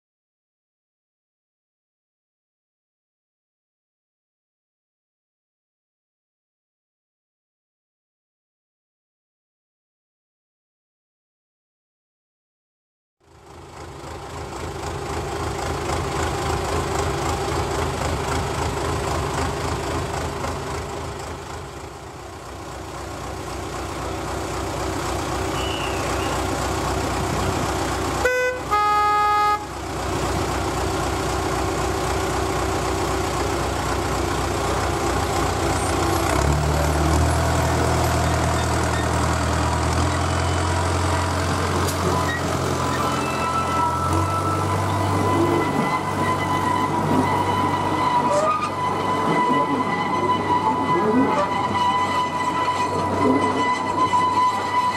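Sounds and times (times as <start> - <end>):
locomotive diesel engine: 13.2 - 54.9
locomotive horn blasts: 25.5 - 26.6, 28.2 - 29.8, 43.0 - 54.9.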